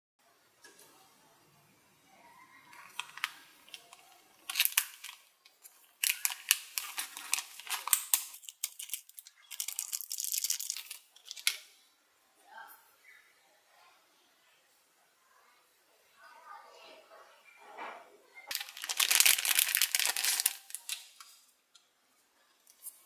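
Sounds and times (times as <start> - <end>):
foil bag crinkling: 2.7 - 5.3, 5.9 - 11.6, 18.5 - 21.3.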